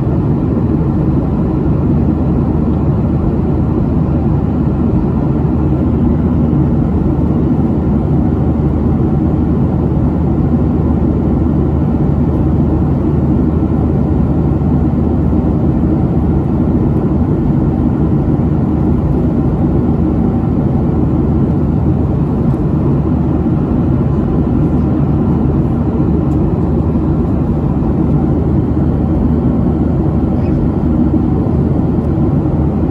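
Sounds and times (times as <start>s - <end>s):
jet engines rumbling: 0.0s - 32.9s.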